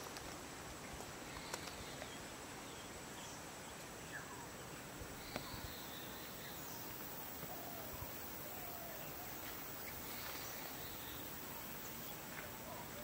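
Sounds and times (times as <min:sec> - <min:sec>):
insect buzz: 0:00.0 - 0:12.5
faint bird chirps: 0:00.8 - 0:13.0.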